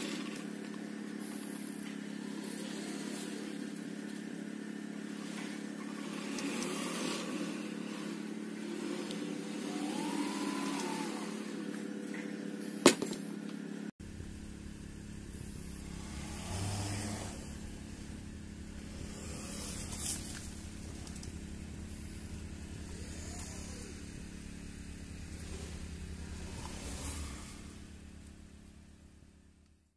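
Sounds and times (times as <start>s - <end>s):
machine hum: 0.0s - 29.9s
motor whine: 0.0s - 29.9s.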